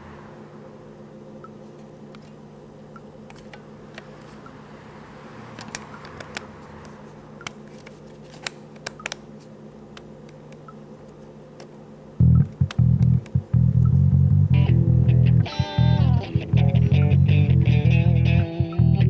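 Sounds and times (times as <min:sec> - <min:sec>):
guitar amplifier humming: 0:10.0 - 0:19.0.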